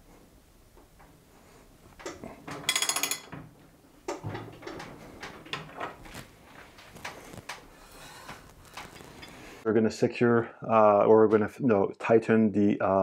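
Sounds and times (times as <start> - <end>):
steel tools clinking on metal: 2.6 - 3.4.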